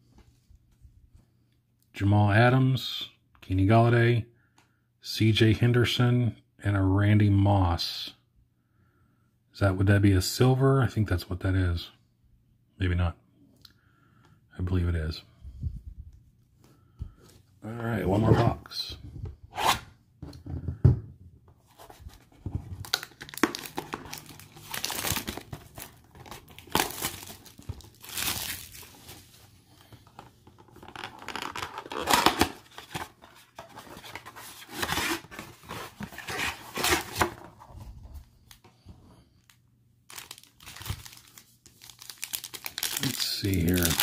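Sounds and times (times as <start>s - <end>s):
foil wrappers crinkling: 22.8s - 29.4s, 40.1s - 44.0s.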